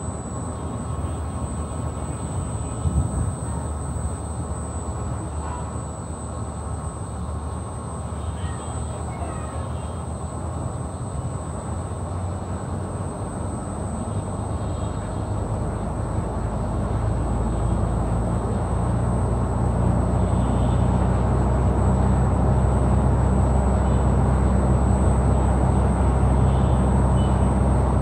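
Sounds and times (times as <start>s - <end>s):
high whine: 0.0s - 28.0s.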